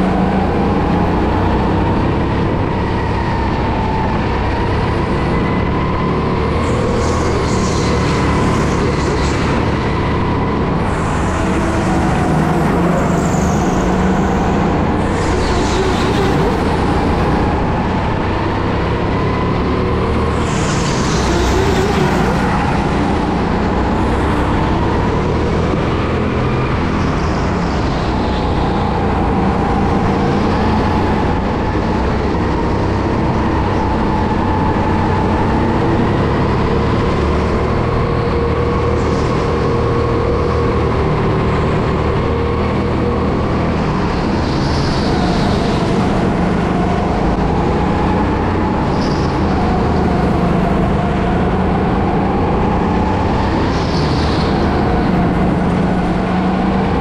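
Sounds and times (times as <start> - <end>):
go-kart engine: 0.0 - 57.0.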